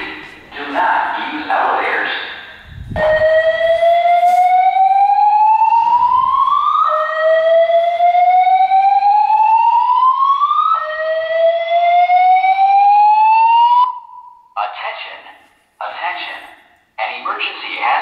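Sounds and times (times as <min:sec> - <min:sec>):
fire alarm whoop tone: 0:02.8 - 0:14.5.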